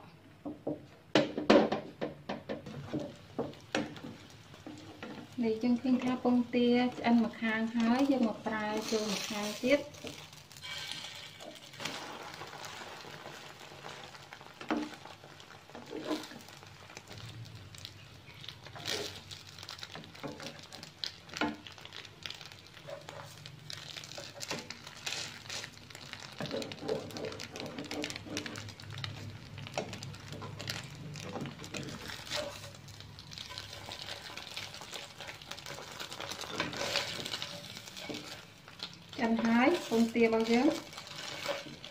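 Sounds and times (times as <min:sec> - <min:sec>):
omelette sizzling in a pan: 0:02.7 - 0:41.9
spatula scraping and knocking pan: 0:10.0 - 0:16.5, 0:24.0 - 0:28.8, 0:33.4 - 0:41.9.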